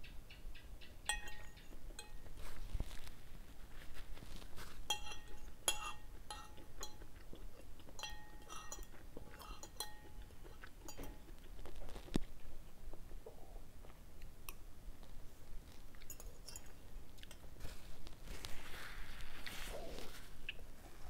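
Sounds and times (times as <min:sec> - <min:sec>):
cutlery clinking on a plate: 0:01.1 - 0:02.3, 0:04.9 - 0:07.1, 0:08.0 - 0:11.3, 0:16.0 - 0:17.5.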